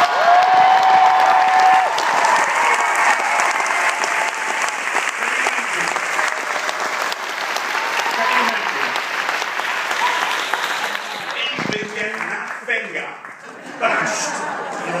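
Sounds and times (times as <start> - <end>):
audience applauding: 0.0 - 15.0.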